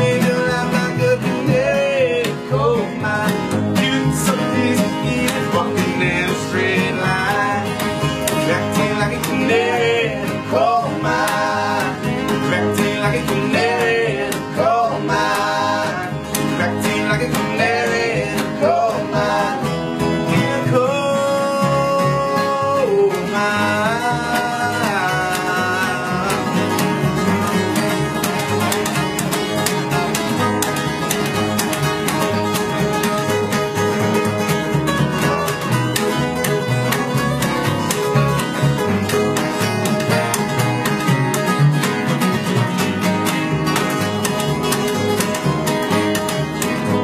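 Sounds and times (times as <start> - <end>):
plucked upright bass: 0.0 - 47.0
strummed acoustic guitars: 0.0 - 47.0
voices singing long sliding notes: 8.5 - 20.5.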